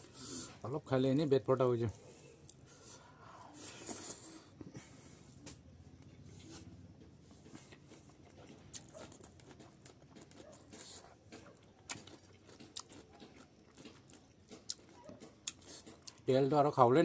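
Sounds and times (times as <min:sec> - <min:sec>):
person chewing food: 0:02.4 - 0:05.6, 0:06.5 - 0:16.3.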